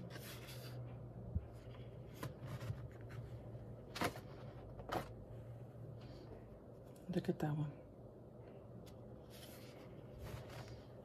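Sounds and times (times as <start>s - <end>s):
paper rustling and sliding: 0.0s - 0.8s, 9.3s - 10.9s
low steady hum: 0.0s - 11.0s.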